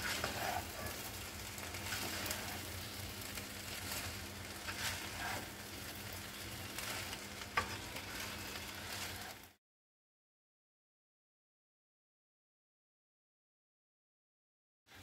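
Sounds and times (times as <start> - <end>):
wooden spatula scraping: 0.0 - 9.5
rice sizzling in a pan: 0.0 - 9.6.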